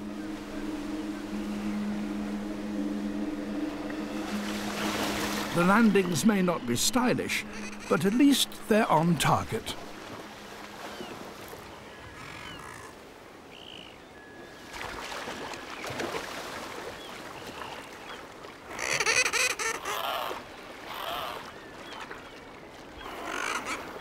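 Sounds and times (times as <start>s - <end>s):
birds calling: 4.2s - 10.0s, 10.7s - 14.6s, 17.0s - 24.0s.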